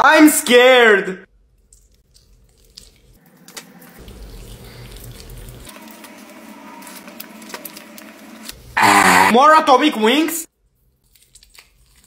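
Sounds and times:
person chewing wetly: 0:01.6 - 0:06.0, 0:10.8 - 0:12.0.

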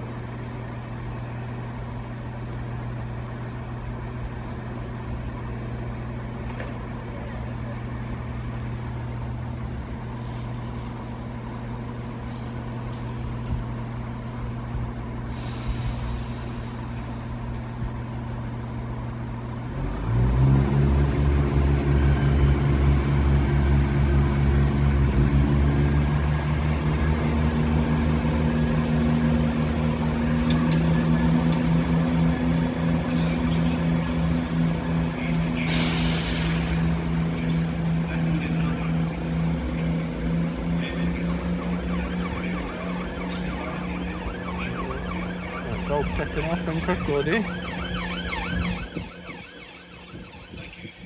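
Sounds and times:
diesel train idling: 0:00.0 - 0:51.0
diesel train pulling away: 0:00.0 - 0:51.0
air hiss: 0:15.3 - 0:17.2, 0:35.6 - 0:36.8.

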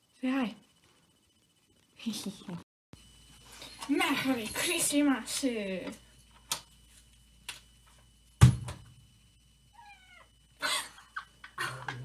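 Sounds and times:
loud thump: 0:08.4 - 0:08.9
cat meowing: 0:09.8 - 0:10.3.

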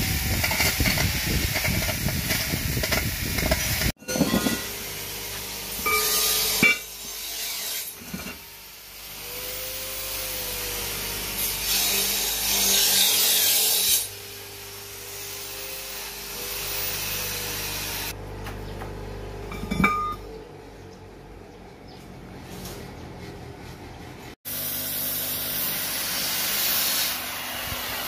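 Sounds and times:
rasping grinding noise: 0:00.0 - 0:04.8, 0:11.2 - 0:18.2
steel bearing race clink: 0:19.5 - 0:20.3.

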